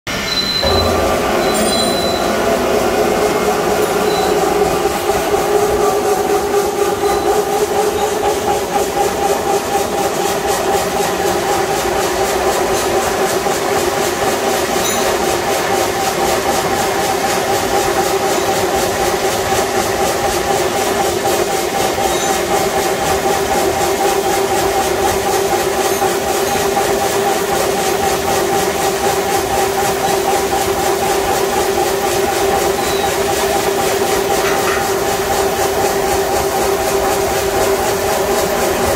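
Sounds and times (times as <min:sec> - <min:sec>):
two-note machine whine: 0:00.1 - 0:09.2
drill machine cutting metal: 0:00.1 - 0:38.0.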